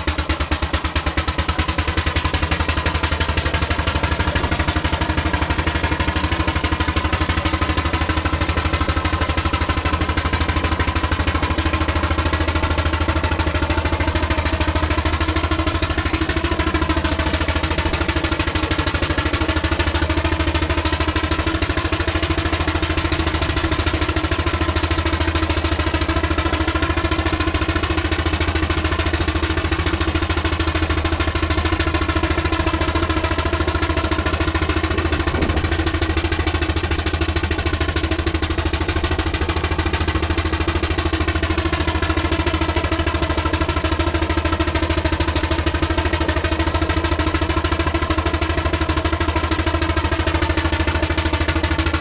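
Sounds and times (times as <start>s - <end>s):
loud mechanical running noise: 0.0s - 52.0s.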